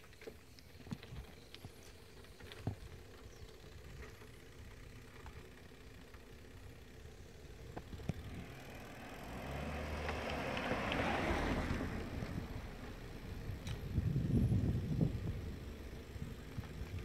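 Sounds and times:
bike rattling clicks: 0:00.0 - 0:08.8, 0:13.3 - 0:14.2, 0:15.2 - 0:17.0
bicycle road noise: 0:00.0 - 0:17.0
rushing wind: 0:10.8 - 0:17.0.

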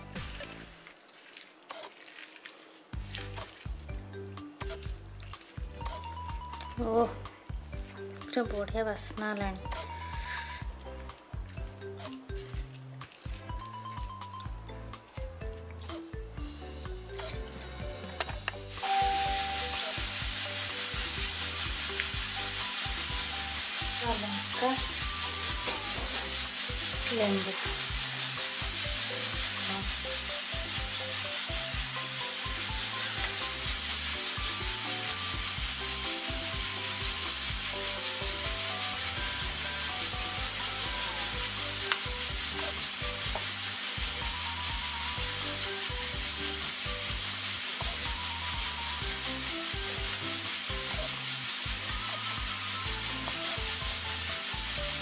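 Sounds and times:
background music with beat: 0:00.0 - 0:00.8, 0:02.9 - 0:55.0
loud constant hiss: 0:18.1 - 0:55.0.

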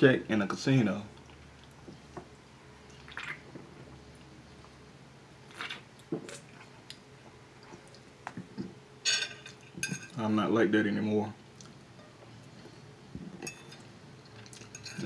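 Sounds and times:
man gulping and swallowing: 0:02.9 - 0:03.9.

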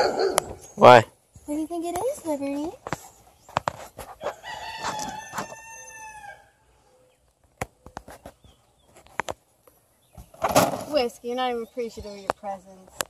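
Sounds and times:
rooster crowing: 0:04.2 - 0:06.7.

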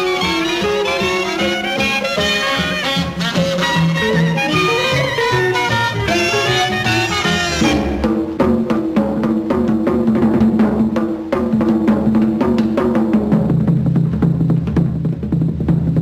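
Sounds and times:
swing band horn section: 0:00.0 - 0:08.4
drummer beating tom-toms: 0:00.0 - 0:16.0
sustained low notes: 0:03.0 - 0:08.5.

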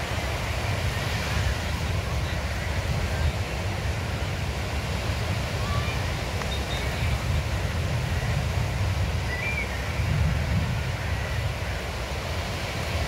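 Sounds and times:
sea waves breaking: 0:00.0 - 0:13.0
wind rumbling on microphone: 0:00.0 - 0:13.0.

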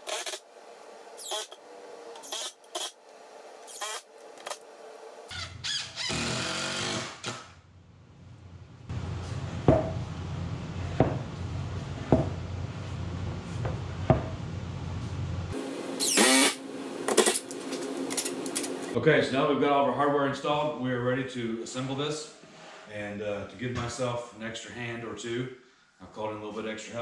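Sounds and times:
drill motor whirring: 0:00.0 - 0:00.4, 0:01.2 - 0:03.0, 0:03.6 - 0:04.6, 0:06.0 - 0:07.5, 0:16.0 - 0:16.6
steady hum: 0:08.0 - 0:19.0.

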